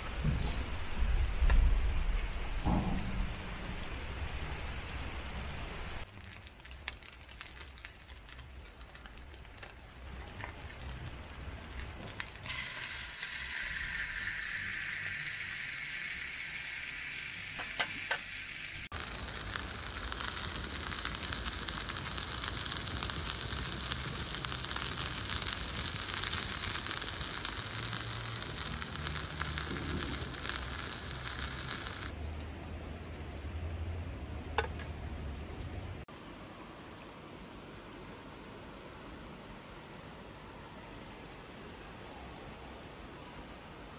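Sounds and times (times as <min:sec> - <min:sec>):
fire crackling: 0:05.9 - 0:32.2
steak sizzling over campfire: 0:06.0 - 0:32.1.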